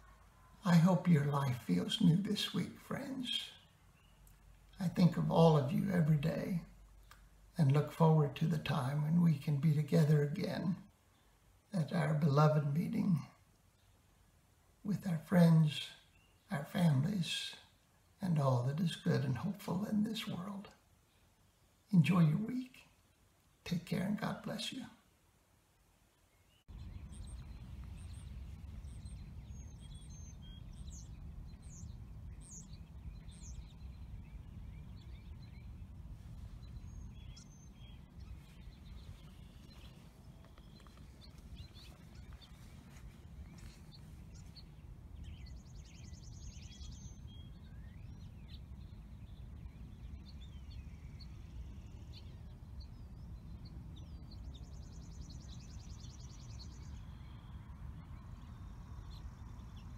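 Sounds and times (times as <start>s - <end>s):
songbirds chirping: 0.0s - 59.9s
steady low rumble: 26.7s - 46.3s.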